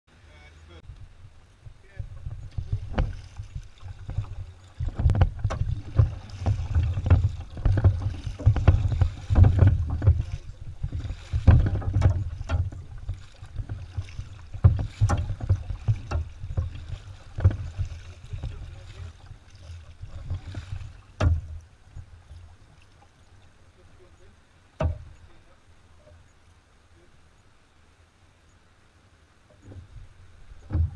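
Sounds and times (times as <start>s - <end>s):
low rumble: 0.8s - 22.5s
paddle strokes in water: 0.9s - 26.4s, 29.4s - 30.9s
knocks against kayak hull: 2.2s - 19.1s, 20.1s - 22.1s, 24.8s - 25.2s, 29.5s - 30.9s.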